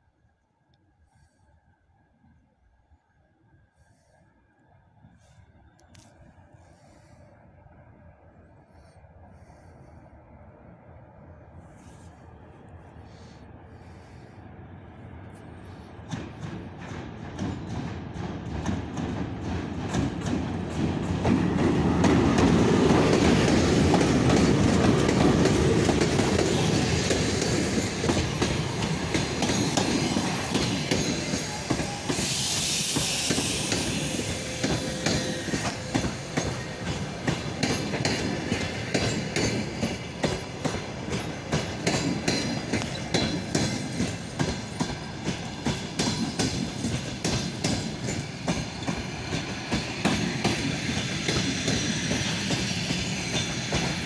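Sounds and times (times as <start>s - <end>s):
electric locomotive rumbling past: 4.0s - 54.0s
clickety-clack of train wheels: 15.2s - 54.0s
brief hiss: 31.0s - 36.9s.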